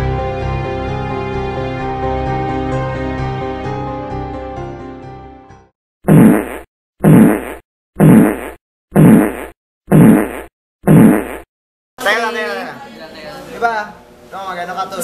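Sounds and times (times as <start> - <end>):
music: 0.0 - 5.7
comic sound effect: 6.1 - 11.4.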